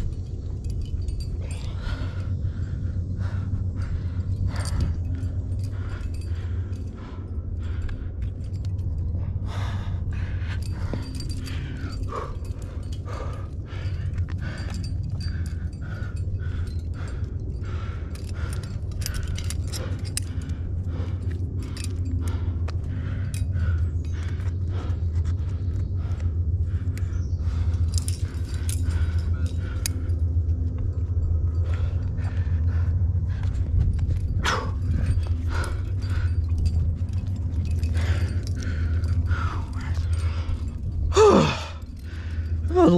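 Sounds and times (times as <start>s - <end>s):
metal climbing gear clinking: 0.0s - 42.9s
steady low rumble: 0.0s - 42.9s.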